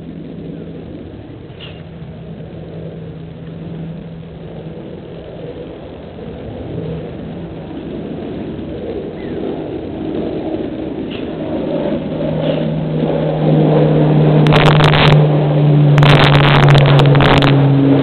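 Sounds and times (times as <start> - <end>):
motor engine running: 12.1 - 18.0.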